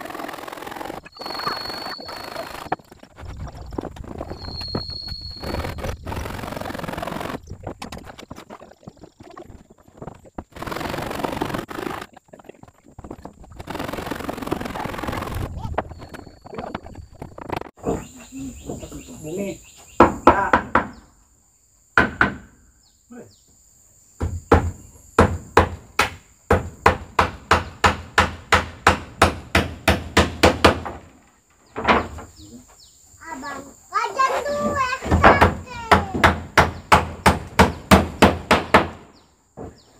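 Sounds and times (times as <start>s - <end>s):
hammer driving nails: 24.2s - 31.0s, 35.2s - 39.1s.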